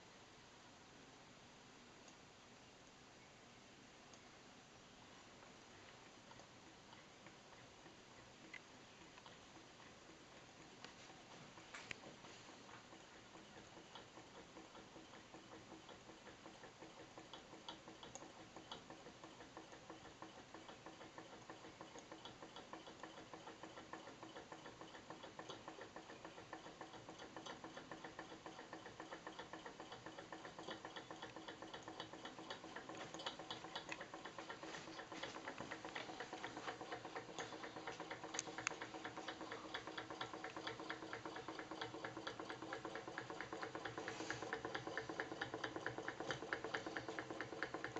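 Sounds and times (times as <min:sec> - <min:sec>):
model engine fast ticking: 0:12.9 - 0:47.9.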